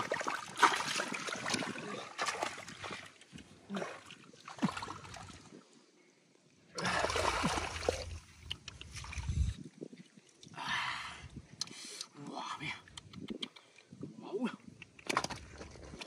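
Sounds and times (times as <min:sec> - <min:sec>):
water splashing: 0:00.0 - 0:05.6, 0:06.8 - 0:09.4.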